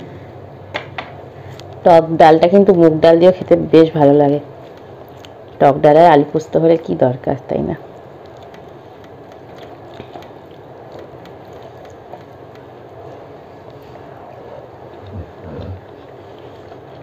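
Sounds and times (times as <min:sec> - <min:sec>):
steady background hiss: 0:00.0 - 0:17.0
chewing: 0:04.6 - 0:05.6, 0:07.9 - 0:17.0
fingers mixing rice on metal plate: 0:08.0 - 0:17.0.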